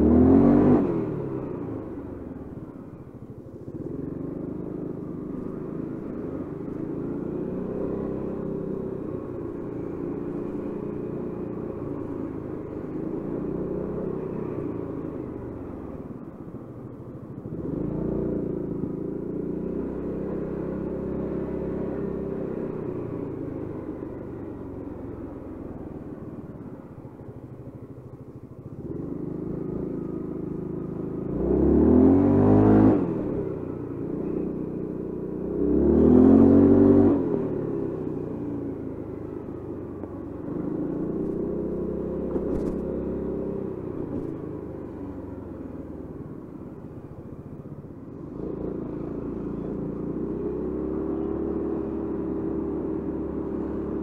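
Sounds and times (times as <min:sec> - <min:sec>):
scooter engine revving: 0:00.0 - 0:16.2, 0:28.7 - 0:54.0.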